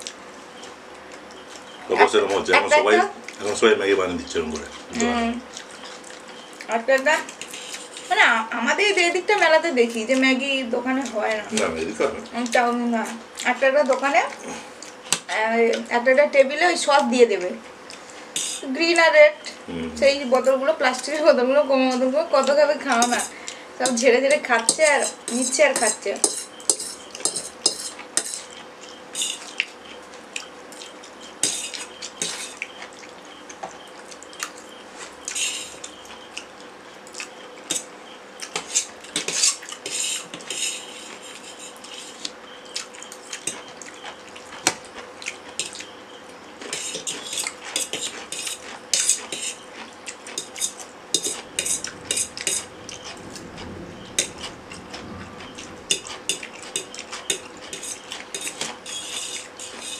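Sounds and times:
faint steady hum: 0.0 - 59.9
cutlery scraping on metal plates: 22.9 - 28.6, 31.4 - 32.6, 38.5 - 42.2, 46.6 - 49.6, 50.3 - 59.9.

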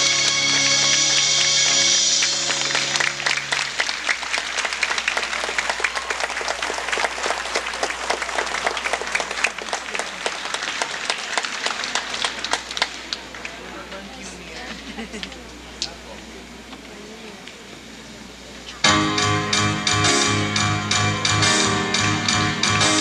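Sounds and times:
audience applauding: 0.0 - 14.2.

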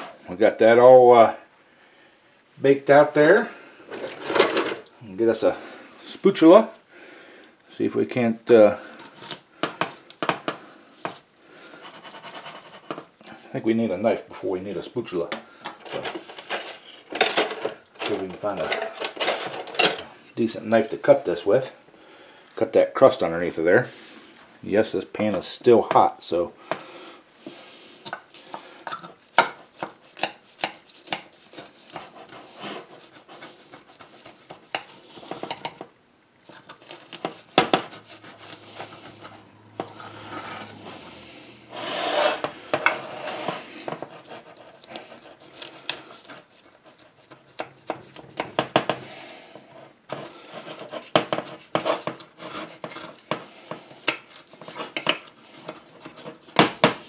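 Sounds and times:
knife cutting crunchy topping: 28.1 - 35.8
knife scraping glass dish: 28.9 - 35.8, 36.5 - 49.1.

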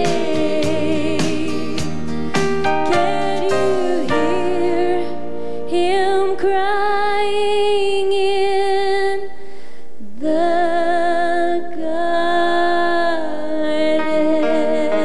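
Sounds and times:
female vocal trio singing: 0.0 - 2.0, 2.7 - 9.4
band backing: 0.0 - 5.6.

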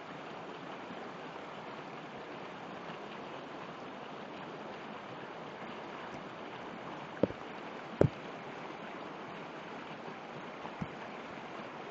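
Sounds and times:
river water rushing over rapids: 0.0 - 11.9.

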